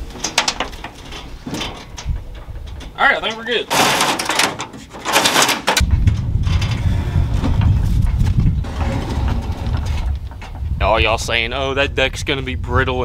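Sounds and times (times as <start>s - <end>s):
steady low rumble: 0.0s - 3.7s, 5.8s - 13.0s
wooden deck scraping boat hull: 7.3s - 10.8s.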